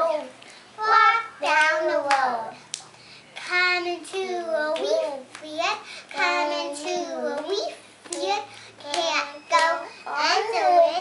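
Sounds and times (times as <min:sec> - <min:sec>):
children chanting a song: 0:00.0 - 0:02.6, 0:06.1 - 0:11.0
hands slapping knees and clapping: 0:01.5 - 0:05.5, 0:07.3 - 0:09.8.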